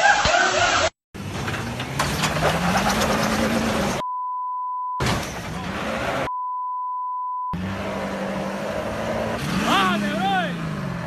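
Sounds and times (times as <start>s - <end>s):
street noise: 0.0s - 4.1s, 5.0s - 6.3s, 7.5s - 11.0s
censor bleeps: 4.0s - 5.0s, 6.3s - 7.6s.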